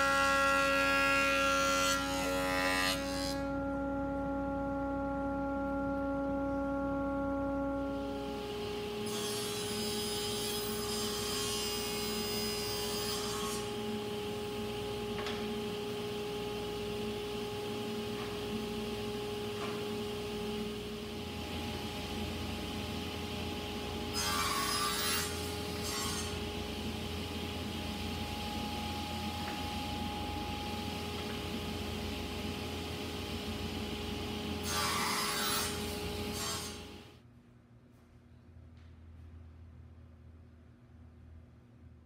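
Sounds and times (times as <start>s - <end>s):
table saw whining: 0.0s - 37.0s
saw blade cutting wood: 9.0s - 13.9s, 24.1s - 26.6s, 34.6s - 36.9s.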